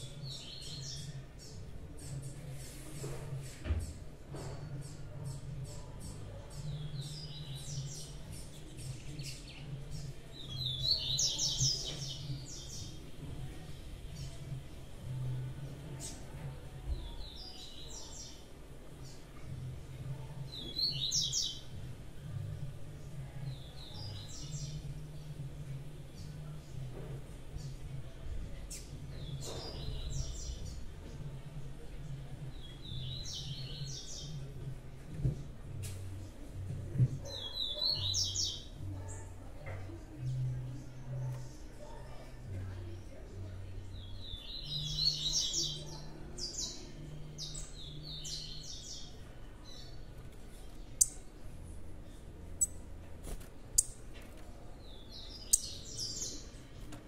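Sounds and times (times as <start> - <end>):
songbird singing: 0.0 - 2.7, 3.7 - 57.0
bird chirping: 52.6 - 52.8, 54.8 - 56.7.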